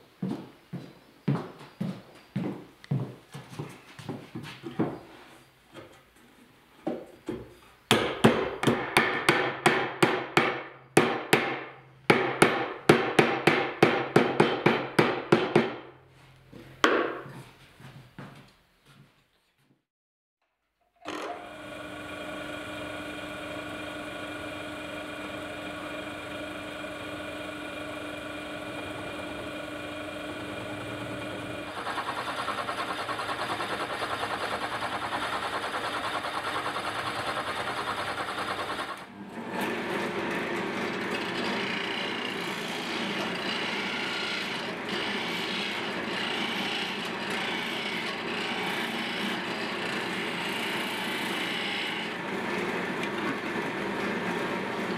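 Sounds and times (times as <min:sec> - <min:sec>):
drill bit grinding into wood: 0:21.0 - 0:39.0, 0:39.6 - 0:53.2
electric drill motor humming: 0:21.0 - 0:39.1, 0:41.1 - 0:52.4
wood lathe spinning: 0:21.0 - 0:54.9
gouge cutting wood: 0:27.6 - 0:39.0, 0:41.1 - 0:52.2.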